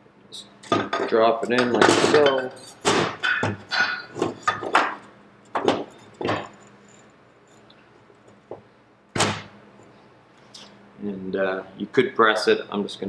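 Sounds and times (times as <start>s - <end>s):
metal clinks and knocks: 0.6s - 8.4s.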